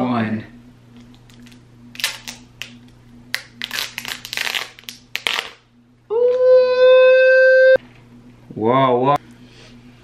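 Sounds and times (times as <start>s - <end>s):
paper strip tearing: 3.4s - 5.6s.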